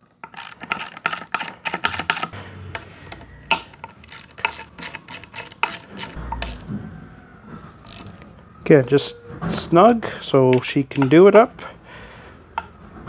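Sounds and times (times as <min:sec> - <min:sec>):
socket ratchet wrench clicking: 0:00.2 - 0:02.3, 0:03.6 - 0:06.6, 0:07.9 - 0:08.1.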